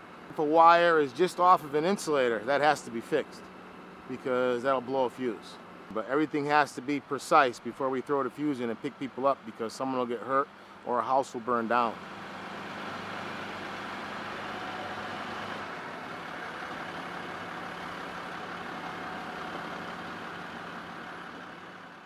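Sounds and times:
truck engine idling: 0:00.0 - 0:22.0.

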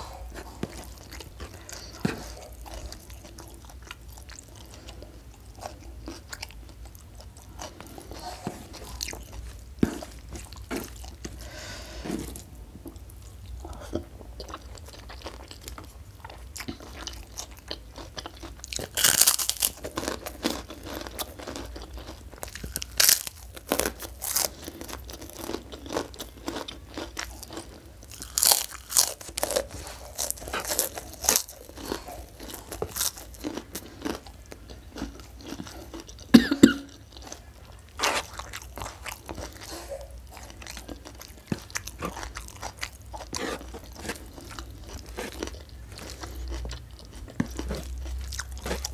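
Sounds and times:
person chewing: 0:00.0 - 0:48.9
crunchy bites: 0:22.4 - 0:34.3, 0:40.4 - 0:48.9.

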